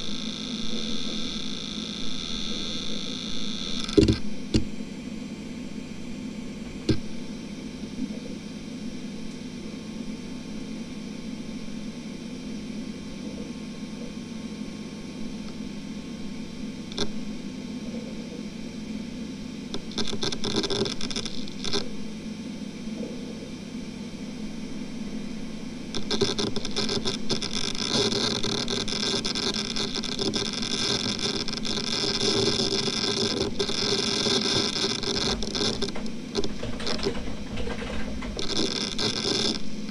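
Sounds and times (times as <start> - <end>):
hard drive seek chatter: 0.0 - 39.9
hard drive spinning hum: 0.0 - 39.9
hard drive click: 2.4 - 4.8.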